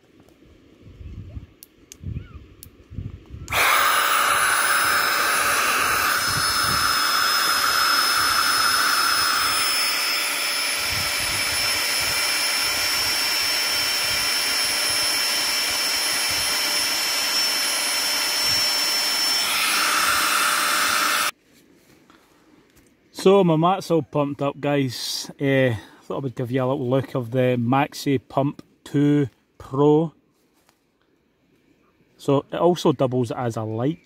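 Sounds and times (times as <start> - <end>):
air pump whining: 3.5 - 21.4.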